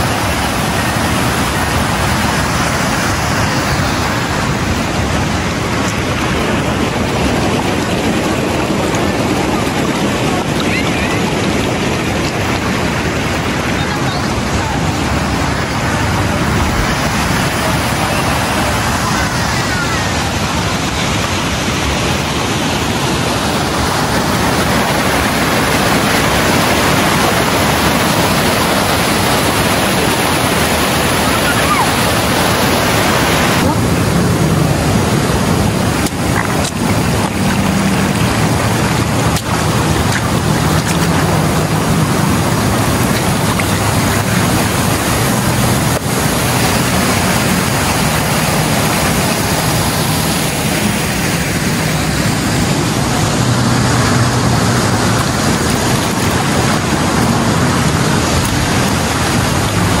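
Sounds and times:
rushing river and small waterfall: 0.0s - 60.0s.

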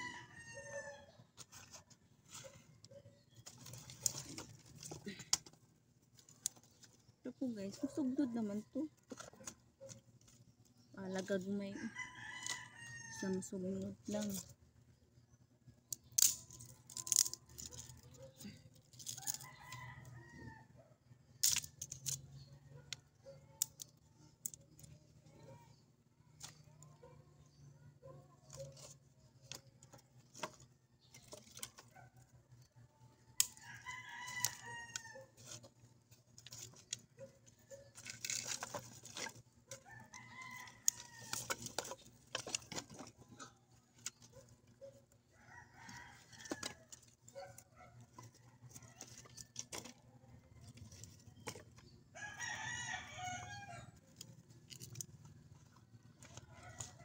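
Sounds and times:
rooster crowing: 0.0s - 1.1s, 11.8s - 13.4s, 19.2s - 20.8s, 33.5s - 35.4s, 39.9s - 41.5s, 45.4s - 46.9s, 52.2s - 54.0s.

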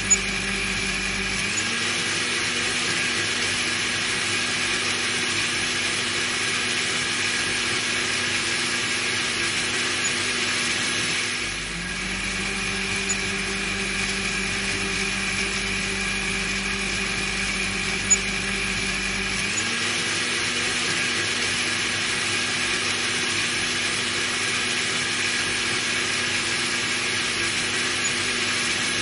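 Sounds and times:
deep hum: 0.0s - 1.6s, 11.5s - 19.5s
blender motor whining: 0.0s - 29.0s.

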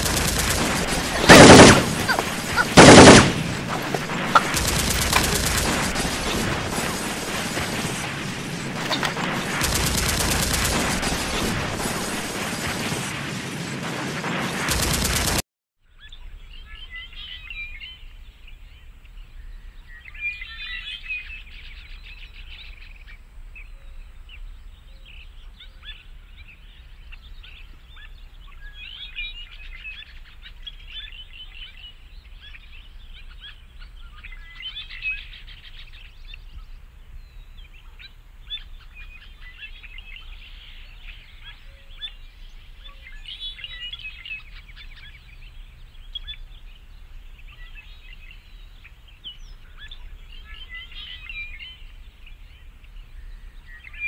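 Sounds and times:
birds chirping: 0.0s - 9.6s, 16.0s - 54.0s
faint woodland ambience: 0.0s - 9.7s, 15.8s - 54.0s
machine-gun fire: 0.0s - 15.4s.

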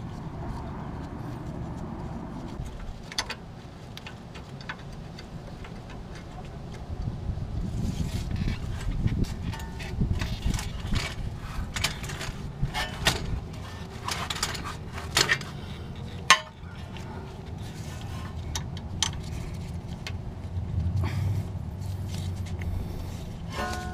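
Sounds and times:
metal tools clinking and knocking: 8.5s - 17.1s, 23.5s - 23.9s.

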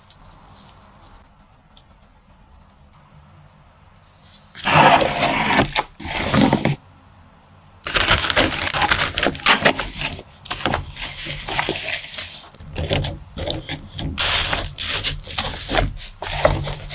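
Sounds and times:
plastic cake cover rustling: 4.5s - 6.8s, 7.8s - 16.9s
plastic wrapping crinkling: 7.8s - 12.6s, 14.2s - 16.9s.

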